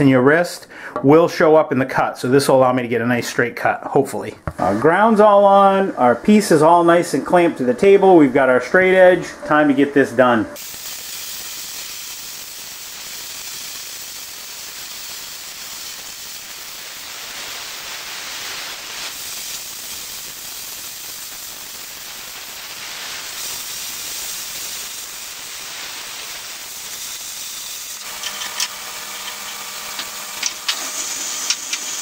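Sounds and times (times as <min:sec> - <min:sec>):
plasma cutter hissing: 0:10.6 - 0:32.0.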